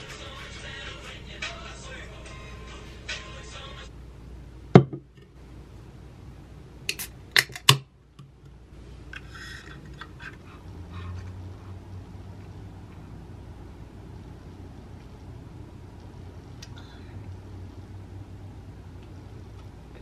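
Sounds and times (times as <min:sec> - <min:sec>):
can knocking on wooden desk: 0:04.8 - 0:05.1
can opening hiss: 0:06.9 - 0:07.6.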